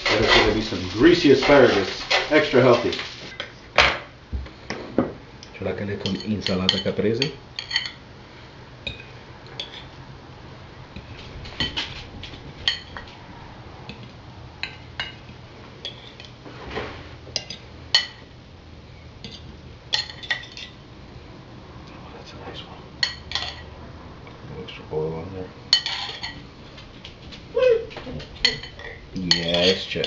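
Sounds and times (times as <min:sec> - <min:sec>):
fork scraping a plate: 0:00.0 - 0:03.4, 0:09.6 - 0:10.0, 0:15.8 - 0:17.6, 0:25.7 - 0:26.4, 0:28.4 - 0:30.0
vent fan humming: 0:00.0 - 0:30.0
fork clinking on ceramic: 0:28.4 - 0:30.0.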